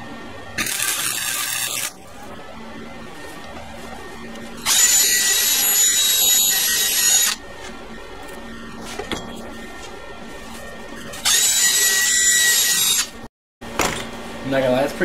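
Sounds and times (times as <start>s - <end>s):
drill grinding metal pipe: 0.6s - 1.9s, 4.6s - 7.4s, 11.2s - 13.2s.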